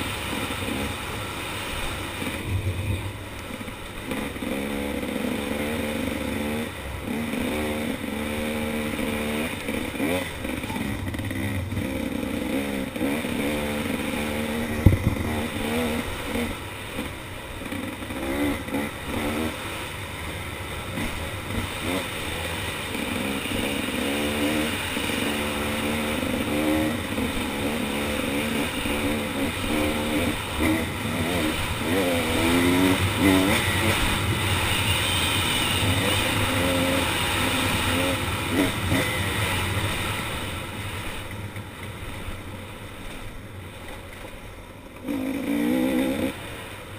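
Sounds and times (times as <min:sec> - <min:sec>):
dirt bike engine revving: 0:00.0 - 0:43.9, 0:44.8 - 0:46.9.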